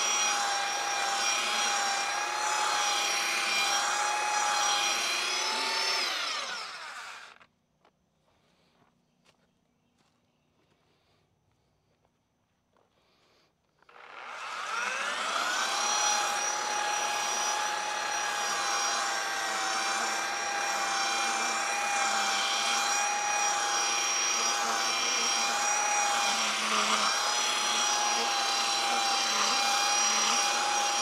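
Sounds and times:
electric sander whine: 0:00.0 - 0:07.5, 0:13.8 - 0:31.0.

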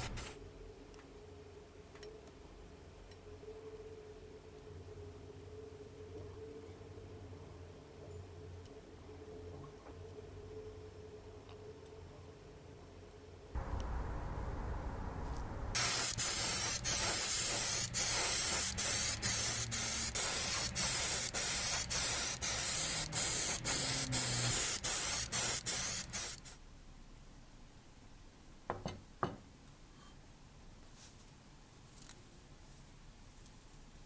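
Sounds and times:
airbrush spray hiss: 0:00.0 - 0:00.4, 0:15.4 - 0:26.6.

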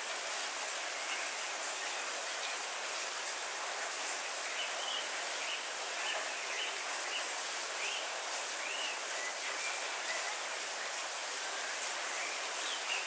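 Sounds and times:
heavy rain falling: 0:00.0 - 0:13.0.

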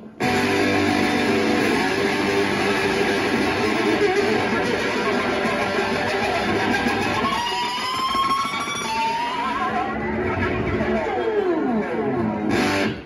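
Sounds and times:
electric guitar blues solo: 0:00.0 - 0:13.0.

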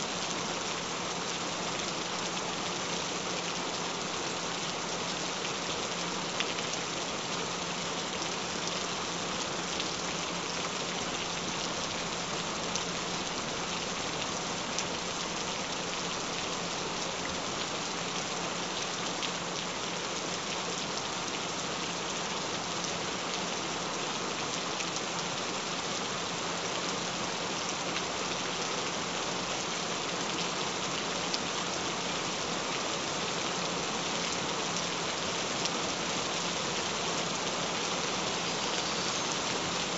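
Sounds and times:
steady rain hiss: 0:00.0 - 0:39.9.

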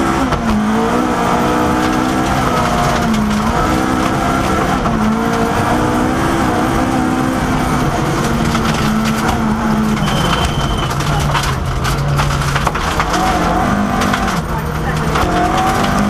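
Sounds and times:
rally car engine revving: 0:00.0 - 0:16.0
sharp clicks and crackles: 0:01.7 - 0:05.6, 0:08.0 - 0:16.0.

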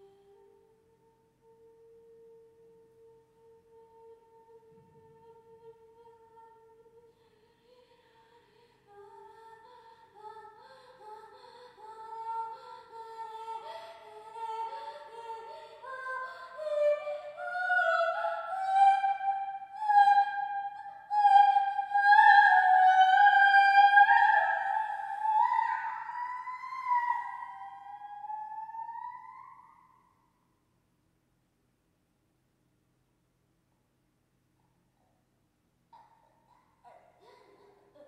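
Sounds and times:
high voice singing without words: 0:00.0 - 0:29.9.

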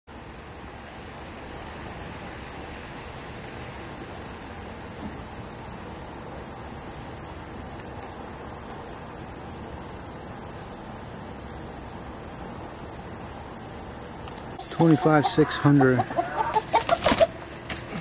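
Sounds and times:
high-pitched insect chorus: 0:00.1 - 0:18.0
low background noise: 0:00.1 - 0:18.0.

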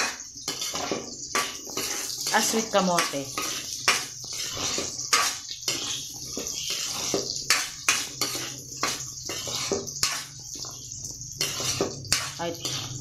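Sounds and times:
food sizzling in oil: 0:00.0 - 0:13.0
spatula scraping a pan: 0:00.0 - 0:13.0.

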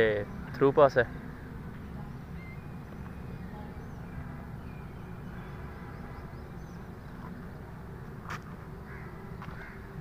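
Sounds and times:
low outdoor rumble: 0:00.0 - 0:10.0
faint bird chirps: 0:00.2 - 0:07.4.

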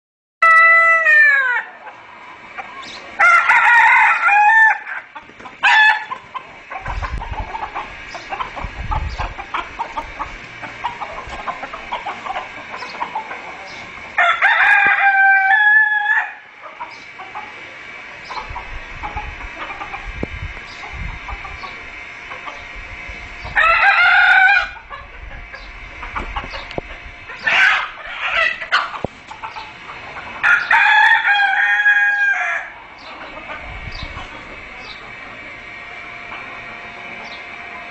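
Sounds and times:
chickens clucking: 0:00.4 - 0:37.9
roosters crowing: 0:00.4 - 0:37.9
chickens scuffling: 0:04.8 - 0:15.1, 0:24.9 - 0:32.1.

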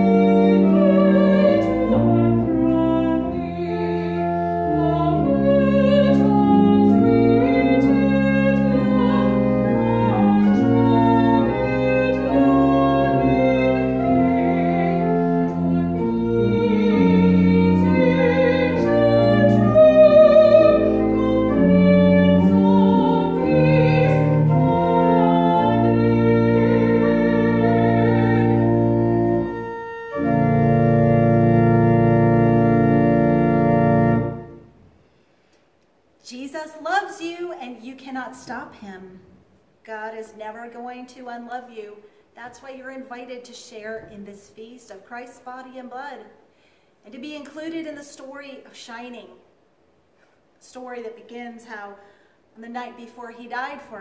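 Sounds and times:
church organ chords: 0:00.0 - 0:34.8.

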